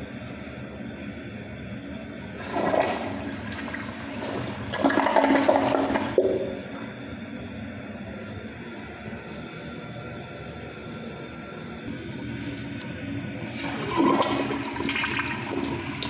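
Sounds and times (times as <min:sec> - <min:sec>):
toilet flushing: 0:02.3 - 0:07.1, 0:12.0 - 0:16.0.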